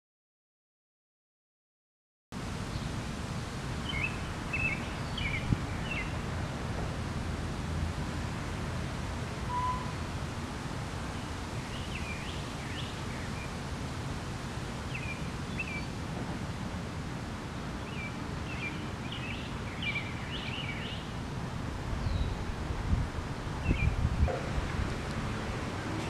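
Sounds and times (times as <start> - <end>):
low background noise: 2.4 - 26.0
songbirds chirping: 3.8 - 6.9, 11.0 - 16.0, 17.4 - 21.2, 22.0 - 22.5, 23.6 - 26.0.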